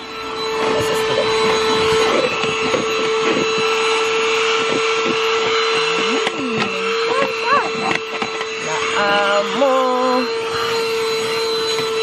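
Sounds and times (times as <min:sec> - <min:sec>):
vacuum cleaner whining: 0:00.0 - 0:12.0
nozzle scuffing surfaces: 0:00.5 - 0:03.6.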